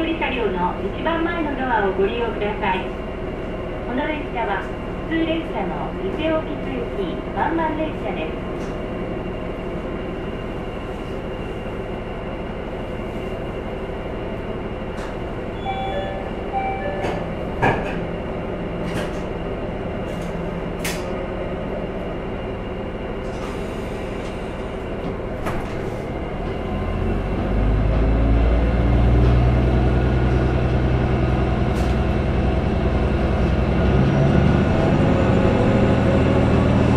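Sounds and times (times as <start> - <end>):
faint short beeps: 15.6 - 17.3.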